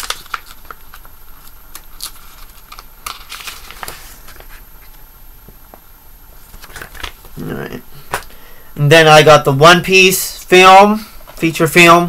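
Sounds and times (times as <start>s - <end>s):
paper rustling: 0.0s - 5.0s, 6.4s - 7.4s.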